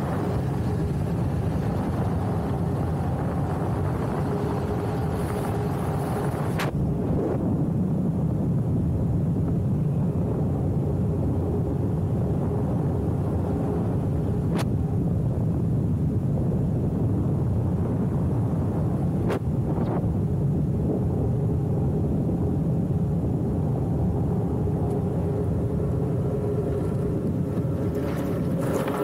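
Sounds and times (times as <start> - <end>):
wheels rolling on asphalt: 0.0 - 6.8, 24.6 - 29.0
wind rushing on microphone: 0.0 - 29.0.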